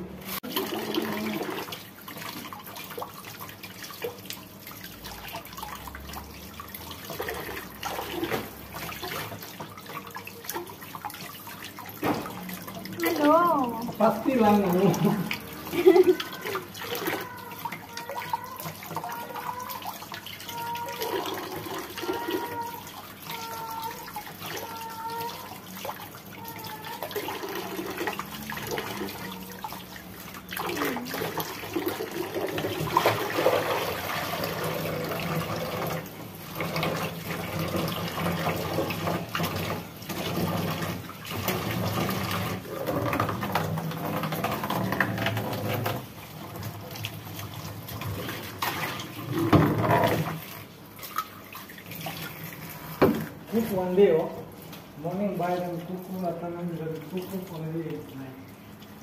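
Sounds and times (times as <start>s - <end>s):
water splashing: 0.0s - 59.0s
tap running into basin: 0.1s - 58.2s.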